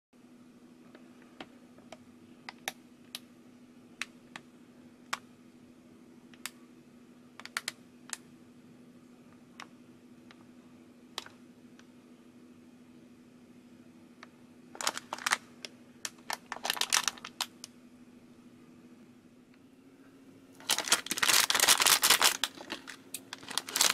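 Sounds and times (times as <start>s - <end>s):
steady low hum: 0.2s - 23.9s
plastic packet crinkling and clicking: 7.4s - 8.2s, 14.8s - 17.7s, 20.6s - 23.9s.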